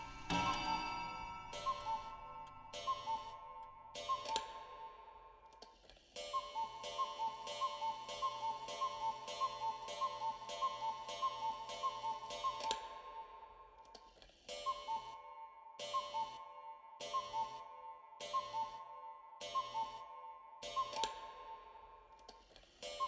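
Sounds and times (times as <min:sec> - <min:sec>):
steady ringing tone: 0:00.0 - 0:05.4
clock-like ticking: 0:01.5 - 0:05.0, 0:06.2 - 0:13.2, 0:14.5 - 0:15.2, 0:15.8 - 0:18.8, 0:19.4 - 0:21.5, 0:22.2 - 0:23.0.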